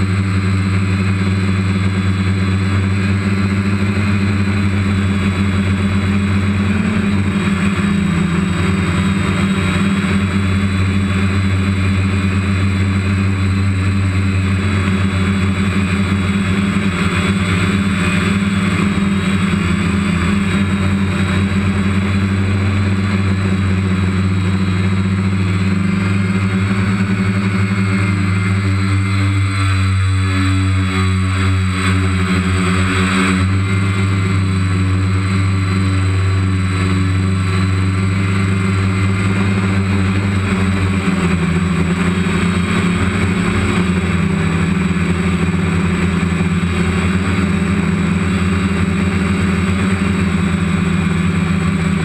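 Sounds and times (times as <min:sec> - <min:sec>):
drone propellers humming: 0:00.0 - 0:52.0.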